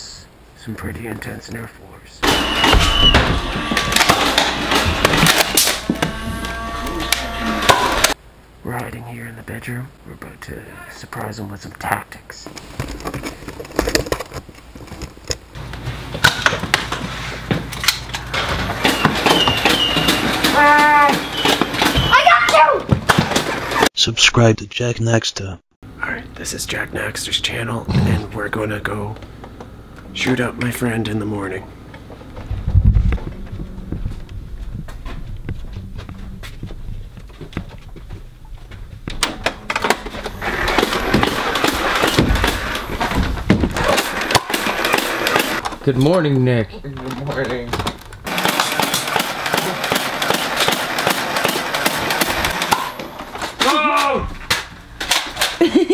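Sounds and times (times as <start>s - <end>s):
foam dart blasters firing: 2.2s - 6.0s, 43.7s - 45.6s, 48.3s - 53.0s.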